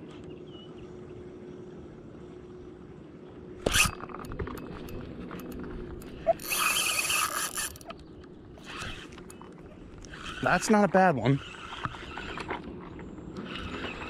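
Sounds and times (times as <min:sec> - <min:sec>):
fishing reel swish: 0:03.6 - 0:08.0, 0:08.6 - 0:09.2, 0:10.0 - 0:12.6, 0:13.4 - 0:14.0
reel handle ratcheting whir: 0:03.6 - 0:14.0.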